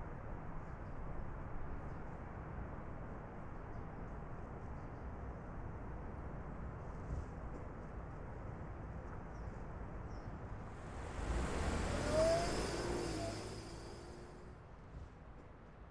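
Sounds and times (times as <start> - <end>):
car engine and tyre noise: 9.8 - 15.1
low road rumble: 10.2 - 15.0.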